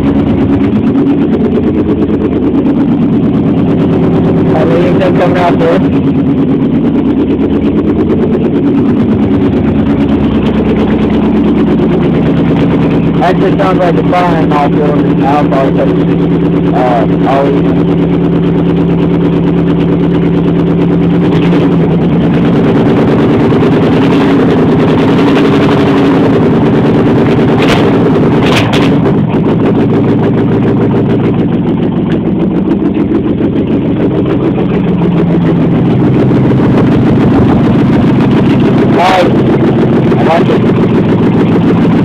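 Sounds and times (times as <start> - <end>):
loud engine idling: 0.0 - 42.0.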